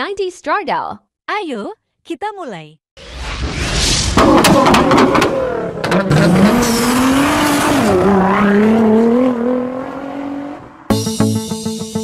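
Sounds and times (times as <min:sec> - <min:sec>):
car engine at high revs: 0:04.2 - 0:10.9
plucked guitar music: 0:10.9 - 0:12.0.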